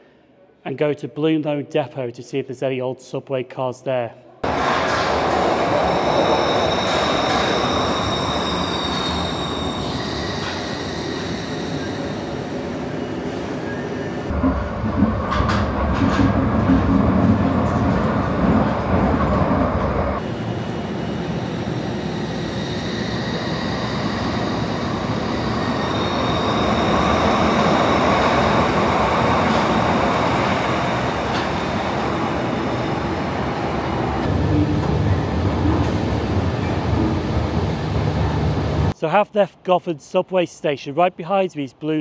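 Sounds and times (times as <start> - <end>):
subway train rumbling and clattering: 4.4 - 39.0
train pulling out: 4.4 - 39.0.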